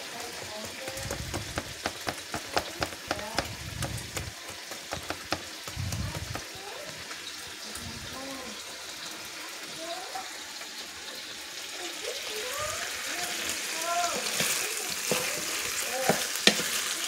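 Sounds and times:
steady hiss: 0:00.7 - 0:16.7.

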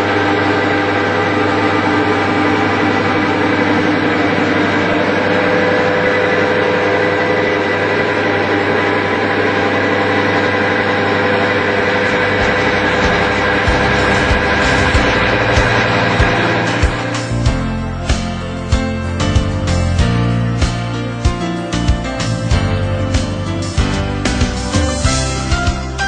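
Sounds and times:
test machine motor humming: 0:00.0 - 0:17.7.

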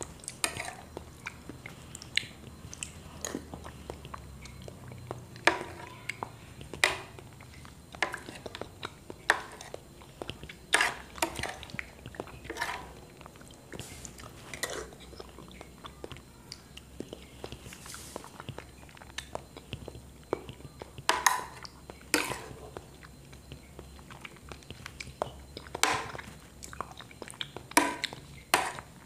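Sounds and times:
wet chewing and mouth noises: 0:00.0 - 0:29.0
metal spoon scraping ceramic plate: 0:12.5 - 0:12.8.

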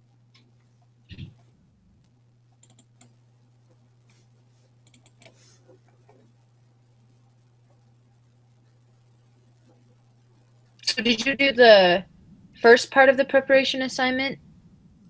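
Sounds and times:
low steady hum: 0:00.0 - 0:15.0
computer keys clicking: 0:02.6 - 0:03.2, 0:04.8 - 0:05.4.

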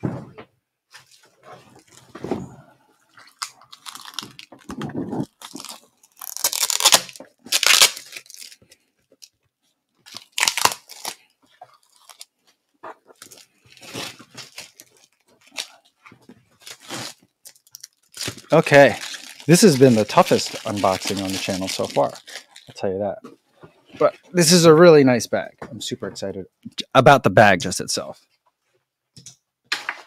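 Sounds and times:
packing tape ripping: 0:03.2 - 0:08.6, 0:10.1 - 0:11.2, 0:16.6 - 0:22.7.

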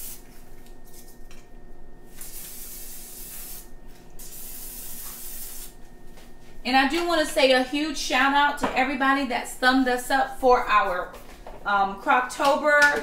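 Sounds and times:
aerosol spray can hissing: 0:00.0 - 0:00.2, 0:02.1 - 0:05.7.

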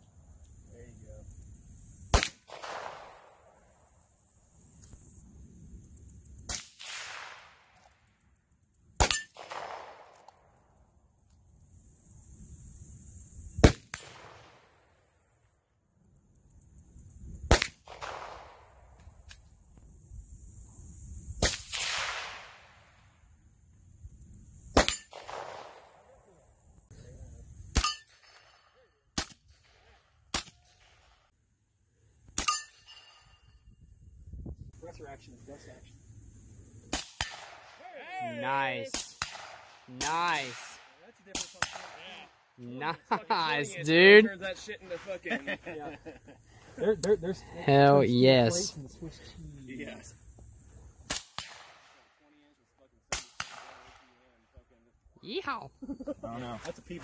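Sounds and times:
gunshots: 0:02.1 - 0:03.4, 0:06.4 - 0:07.7, 0:09.0 - 0:10.2, 0:13.6 - 0:14.7, 0:17.5 - 0:18.7, 0:21.4 - 0:22.8, 0:24.7 - 0:26.0, 0:36.9 - 0:37.8, 0:38.8 - 0:42.3, 0:51.1 - 0:52.1, 0:53.1 - 0:54.1.

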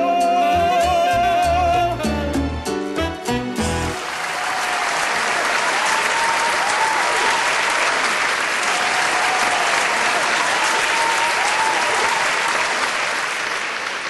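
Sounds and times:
audience applauding: 0:03.8 - 0:14.0.

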